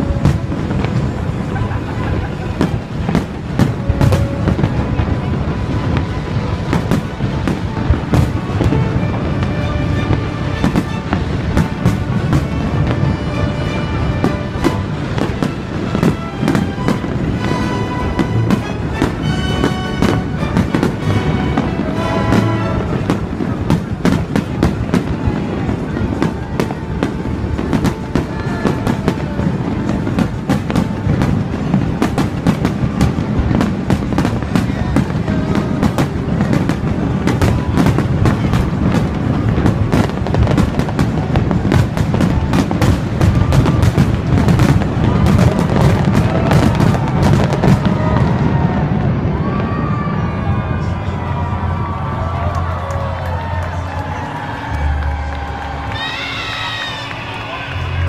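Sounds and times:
fireworks bursting: 0:00.0 - 0:58.0.

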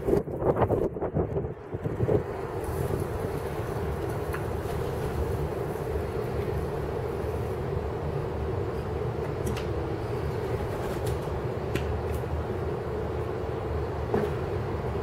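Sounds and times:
constant hum: 0:00.0 - 0:15.0.

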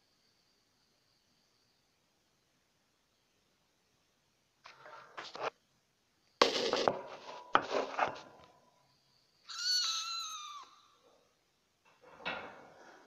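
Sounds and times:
kitten high-pitched cry: 0:09.5 - 0:11.0.

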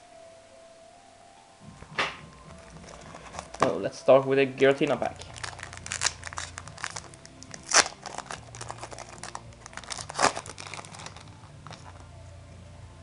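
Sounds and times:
foil wrapper crinkling: 0:02.4 - 0:03.9, 0:04.7 - 0:12.1
foil pack ripping: 0:02.6 - 0:03.8, 0:05.0 - 0:12.0.

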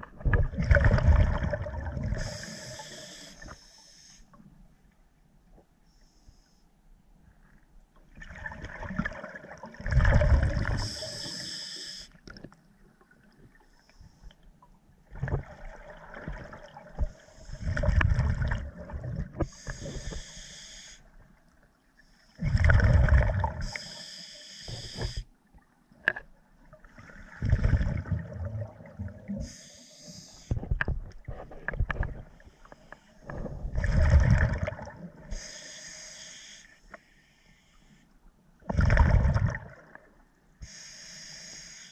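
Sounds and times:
scuba regulator hiss: 0:02.2 - 0:04.2, 0:10.8 - 0:12.1, 0:19.5 - 0:21.0, 0:23.6 - 0:25.2, 0:29.4 - 0:30.5, 0:35.3 - 0:38.0, 0:40.6 - 0:41.9.

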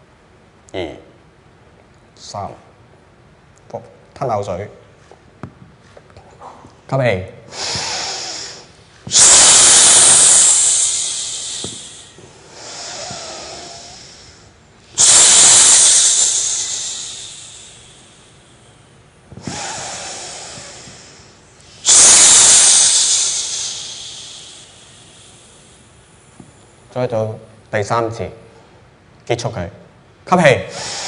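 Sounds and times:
deep breathing close to microphone: 0:07.5 - 0:26.3, 0:30.7 - 0:31.0.

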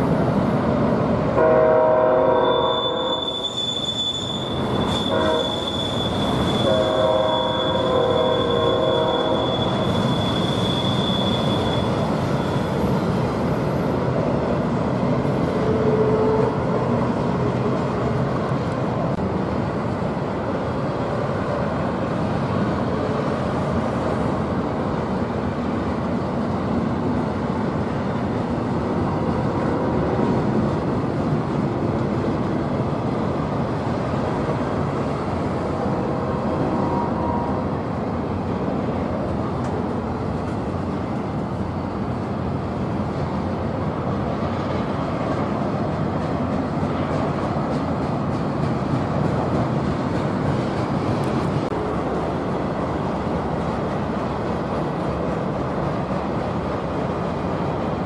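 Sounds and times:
train wheels rumbling on rail: 0:00.0 - 0:58.0
high wheel squeal: 0:02.4 - 0:13.1.

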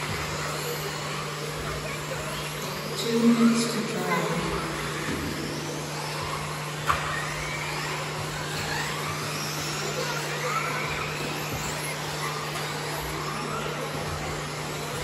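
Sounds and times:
rc car motors whining: 0:00.0 - 0:15.0.

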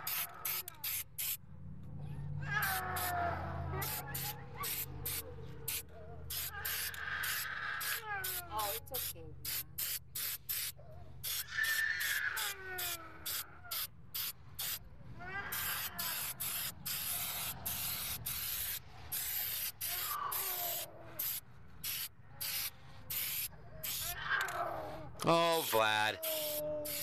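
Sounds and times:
spray can hissing: 0:00.0 - 0:01.4, 0:03.8 - 0:14.8, 0:15.5 - 0:24.1, 0:25.3 - 0:27.0
child whimpering: 0:02.6 - 0:08.8, 0:10.8 - 0:13.9, 0:15.2 - 0:16.4, 0:19.8 - 0:21.3, 0:22.3 - 0:25.2, 0:26.0 - 0:27.0.

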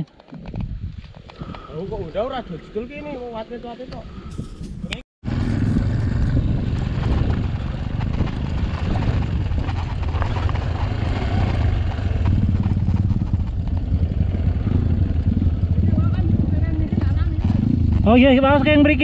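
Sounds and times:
motorcycle engine idling: 0:05.3 - 0:18.7.

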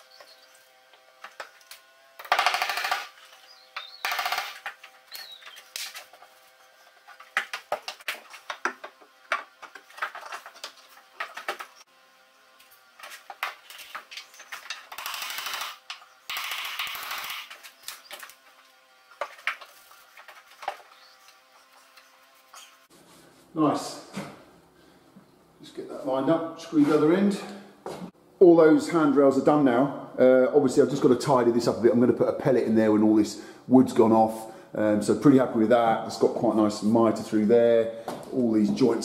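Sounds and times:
impact driver driving screws: 0:01.2 - 0:06.0, 0:13.0 - 0:18.4.

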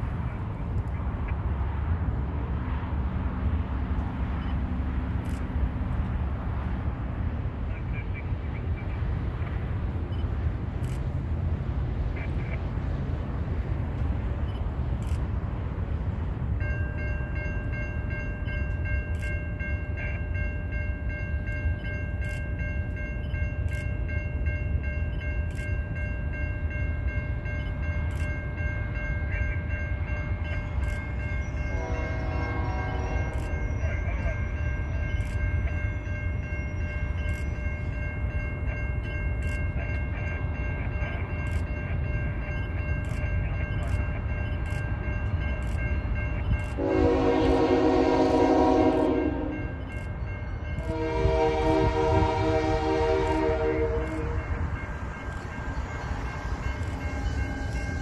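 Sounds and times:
freight train rumbling: 0:00.0 - 0:58.0
locomotive horn: 0:31.7 - 0:33.8, 0:46.8 - 0:49.8, 0:50.8 - 0:54.7.

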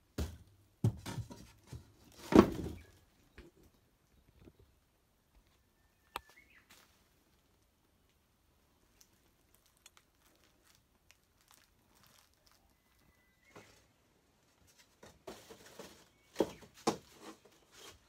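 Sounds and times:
rustling and shuffling: 0:00.2 - 0:05.7, 0:06.3 - 0:18.0.

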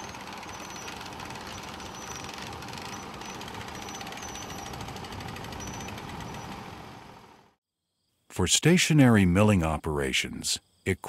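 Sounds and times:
sawmill engine rattling: 0:00.0 - 0:07.5.

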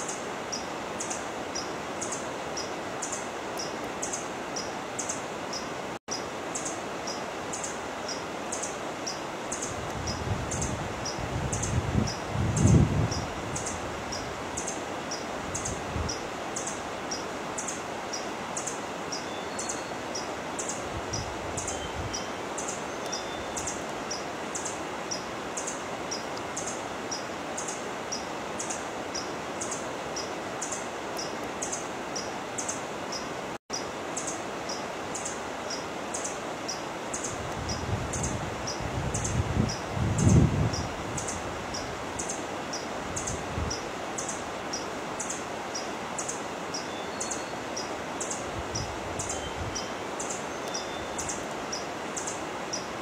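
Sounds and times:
steady hiss: 0:00.0 - 0:53.0.

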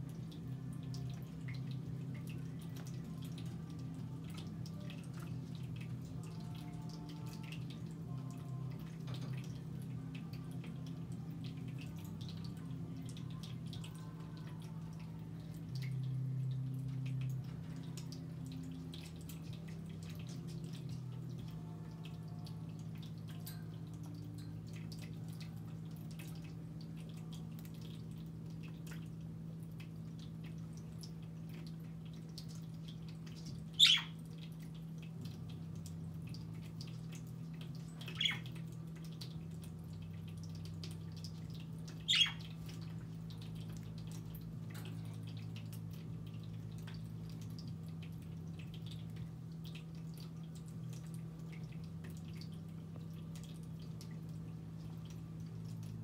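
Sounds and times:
budgerigars chirping: 0:33.8 - 0:34.1.

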